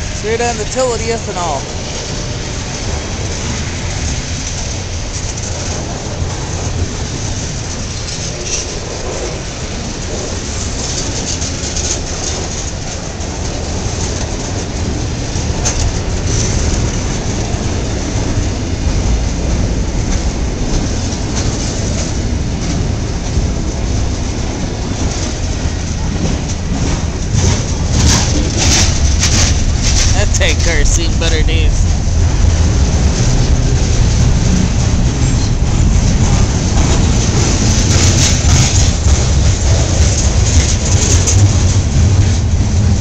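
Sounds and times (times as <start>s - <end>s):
clickety-clack over rail joints: 0.0s - 43.0s
train wheels rumbling on rail: 0.0s - 43.0s.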